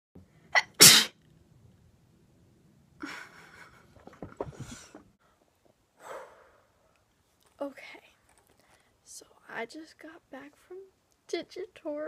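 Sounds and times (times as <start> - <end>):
soft breathing sounds: 4.4 - 7.0, 7.8 - 9.1.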